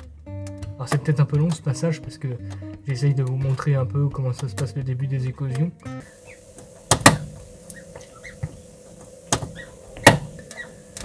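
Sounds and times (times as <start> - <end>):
incubator hum: 5.9 - 11.0
sharp knocks inside egg: 6.3 - 8.6, 9.3 - 11.0
duckling peeping faintly: 7.7 - 8.5, 9.6 - 9.8, 10.4 - 10.8.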